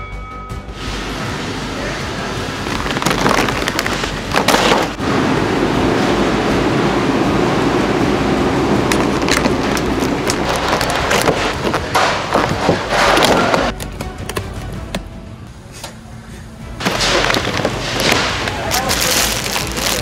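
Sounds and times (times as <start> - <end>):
plastic containers crackling: 2.6 - 5.0, 8.9 - 14.0, 16.8 - 20.0
shopping cart rattling: 2.6 - 5.0, 8.9 - 13.8, 16.8 - 20.0.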